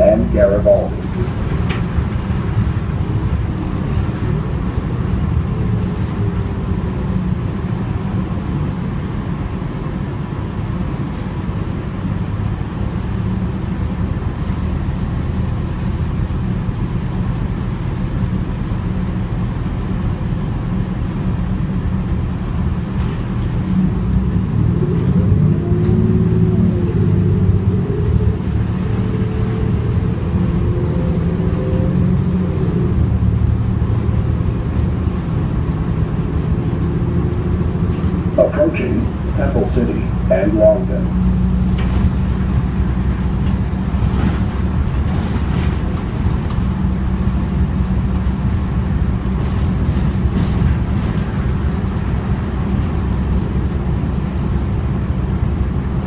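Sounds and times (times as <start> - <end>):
whine rising and falling: 0.0 - 1.0
bus engine and road rumble: 0.0 - 56.0.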